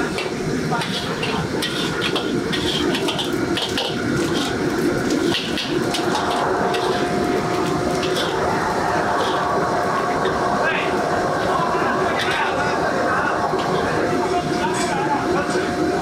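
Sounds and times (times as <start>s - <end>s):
metal spatula scraping wok: 0.0s - 10.4s
wok burner flame rushing: 0.0s - 16.0s.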